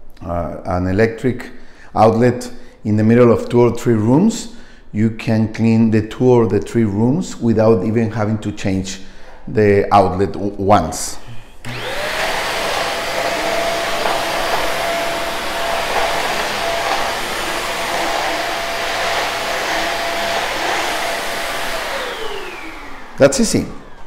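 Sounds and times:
vacuum cleaner motor whining: 0:11.6 - 0:24.0.

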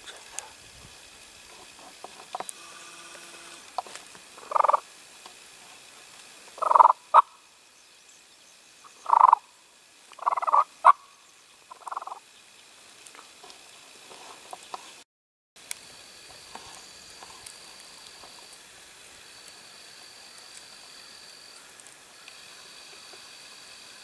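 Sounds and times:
raspy turkey calls: 0:04.4 - 0:04.9, 0:06.6 - 0:07.5, 0:08.8 - 0:09.6, 0:10.2 - 0:12.2.

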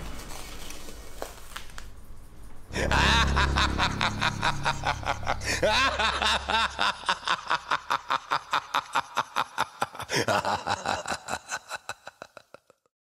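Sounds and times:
sinister cackling laugh: 0:02.7 - 0:12.9.

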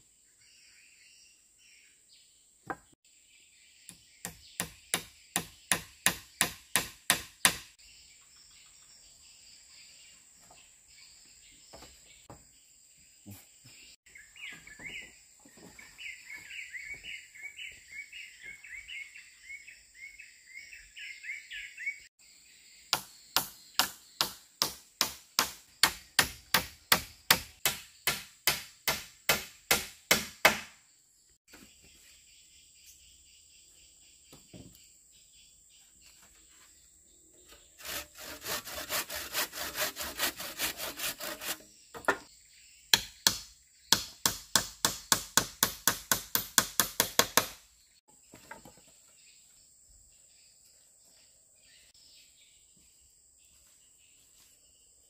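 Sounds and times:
bird singing warbling song: 0:00.0 - 0:24.6, 0:30.9 - 0:45.1, 0:46.7 - 0:55.0
hand tool blows on wood: 0:37.8 - 0:41.6.

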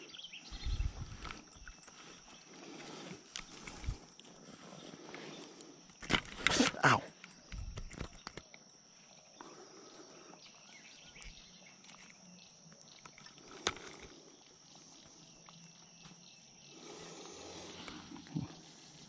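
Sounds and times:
fly line rustling: 0:00.0 - 0:08.5.

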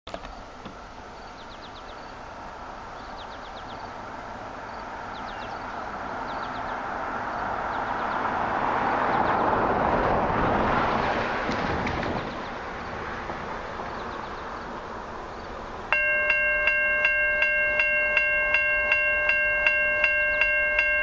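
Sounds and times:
songbirds chirping: 0:00.1 - 0:09.9, 0:10.7 - 0:21.0
broad rushing noise: 0:00.2 - 0:21.0.

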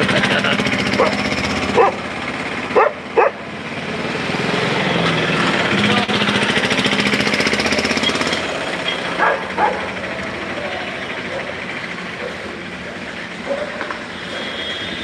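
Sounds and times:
vehicle engine idling: 0:00.0 - 0:15.0
dog barking: 0:01.0 - 0:02.1, 0:02.7 - 0:03.4, 0:09.2 - 0:10.0, 0:11.3 - 0:12.5, 0:13.4 - 0:14.6.

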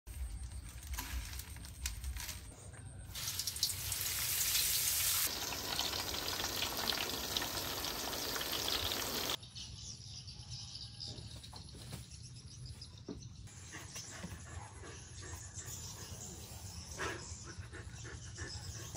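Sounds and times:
food sizzling in deep-frying oil: 0:03.1 - 0:09.4.

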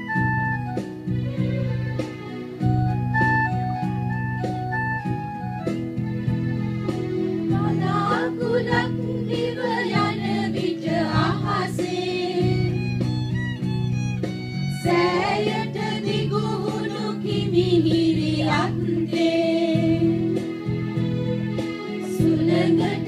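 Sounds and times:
keyboard chords: 0:00.0 - 0:10.4
women singing devotional song: 0:07.5 - 0:12.8, 0:14.8 - 0:20.4, 0:22.1 - 0:23.0.

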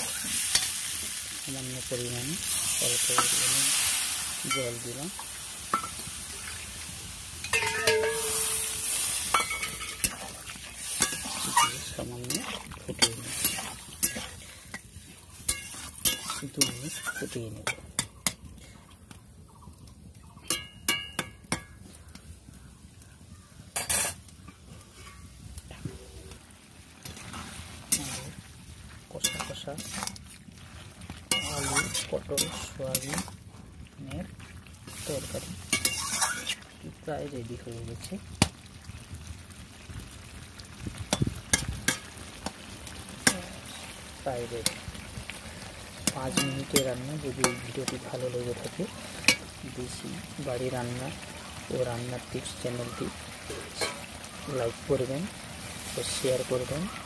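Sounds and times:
curry simmering: 0:00.0 - 0:57.0
gravy sizzling: 0:00.0 - 0:57.0
metal spatula scraping metal pan: 0:07.4 - 0:14.8, 0:15.4 - 0:17.4, 0:23.8 - 0:24.2, 0:27.0 - 0:28.4, 0:31.3 - 0:33.3, 0:35.2 - 0:36.6.

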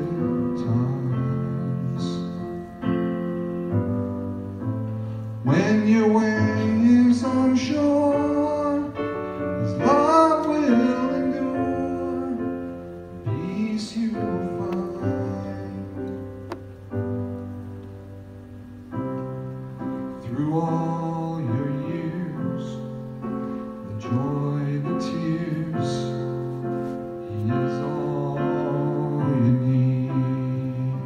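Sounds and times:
man singing: 0:00.0 - 0:02.6, 0:05.4 - 0:16.4, 0:20.2 - 0:23.2, 0:23.8 - 0:31.0
keyboard piano chords: 0:00.0 - 0:31.0.

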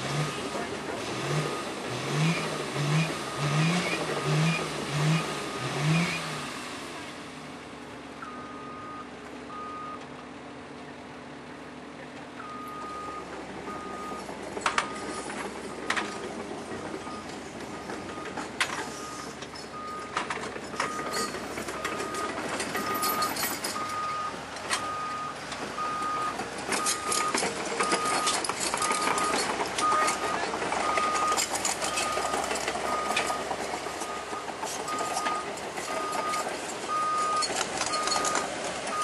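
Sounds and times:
vehicle engine under load: 0:00.0 - 0:39.0
reversing beeper: 0:08.2 - 0:10.0, 0:12.4 - 0:15.3, 0:17.0 - 0:39.0.

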